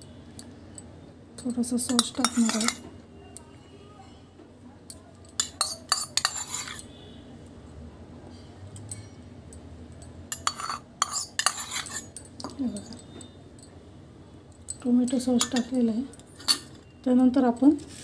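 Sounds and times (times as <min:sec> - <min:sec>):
spoon clinking on a plate: 0:00.4 - 0:03.5, 0:04.9 - 0:07.0, 0:08.3 - 0:13.8, 0:14.5 - 0:16.9.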